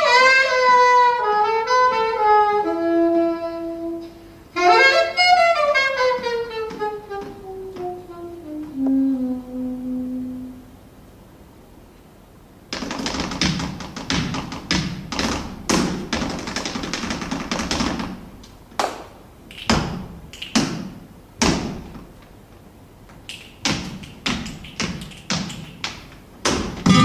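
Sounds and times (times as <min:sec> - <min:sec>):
heel and toe strikes on stage: 0:12.7 - 0:18.2, 0:23.6 - 0:27.0.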